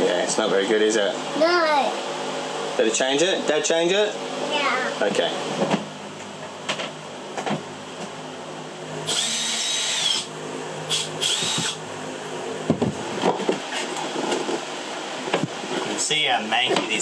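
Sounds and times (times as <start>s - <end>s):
small power tool whirring: 9.0s - 10.3s, 10.9s - 11.8s.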